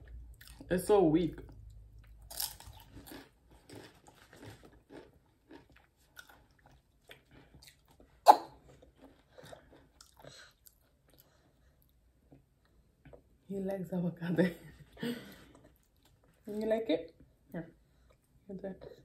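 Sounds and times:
chips being bitten and chewed: 0:02.0 - 0:08.1.

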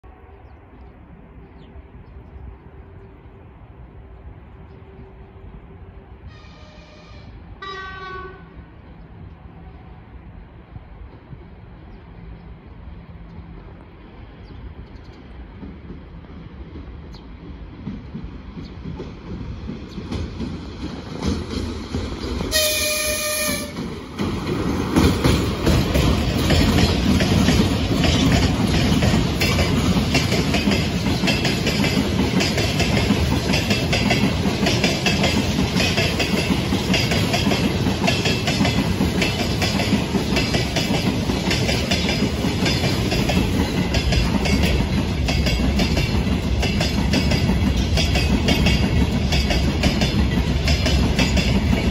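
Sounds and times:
locomotive horn blast: 0:06.3 - 0:08.6, 0:22.5 - 0:23.8.

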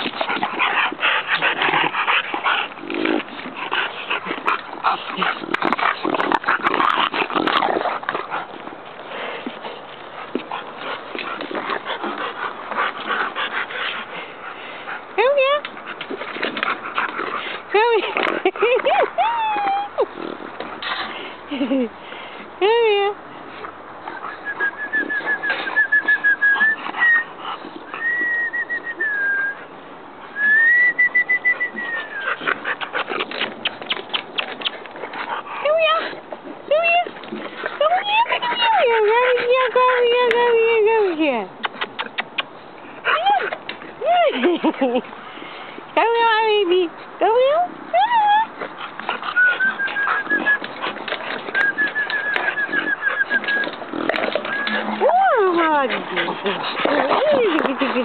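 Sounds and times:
puppies scuffling and scraping: 0:00.0 - 0:28.9, 0:30.9 - 0:58.0
puppy whining: 0:47.9 - 0:58.0.

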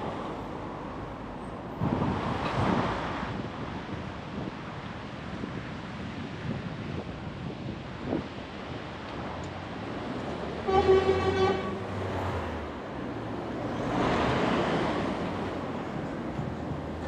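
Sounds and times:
street traffic: 0:00.0 - 0:17.0
vehicle passing close by: 0:09.7 - 0:17.0
vehicle horn honk: 0:10.6 - 0:12.0.

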